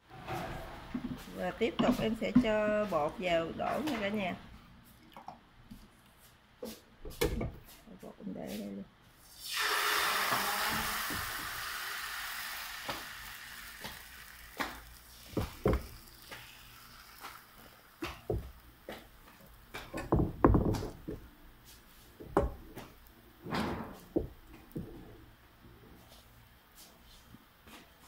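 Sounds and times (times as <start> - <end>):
batter sizzling in a frying pan: 9.2 - 19.8.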